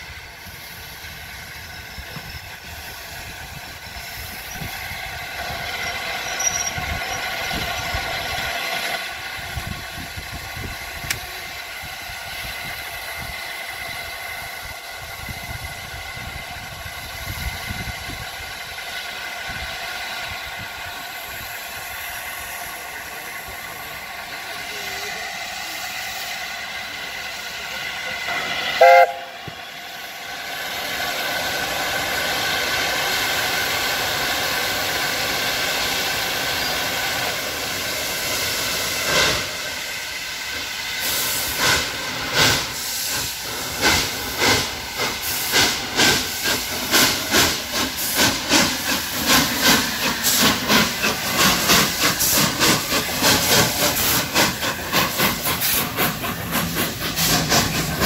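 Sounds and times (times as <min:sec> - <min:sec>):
steam hissing: 0:00.0 - 0:58.0
steam whistle blast: 0:28.7 - 0:29.5.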